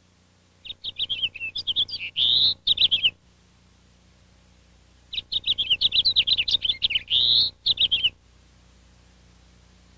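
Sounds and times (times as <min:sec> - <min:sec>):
faint steady low hum: 0:00.0 - 0:09.9
finch song warble: 0:00.6 - 0:03.2, 0:05.0 - 0:08.2.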